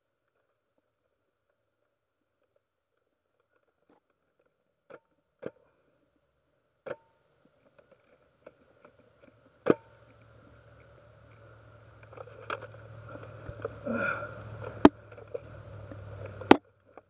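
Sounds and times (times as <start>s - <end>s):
low steady rumble: 9.1s - 17.0s
sharp clicks and knocks: 14.5s - 17.0s.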